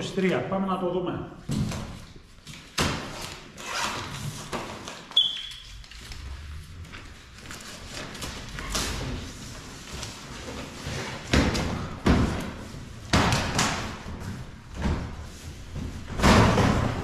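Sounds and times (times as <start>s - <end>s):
cardboard rustling and scraping: 5.7s - 11.5s
cardboard panels thumping: 11.2s - 17.0s.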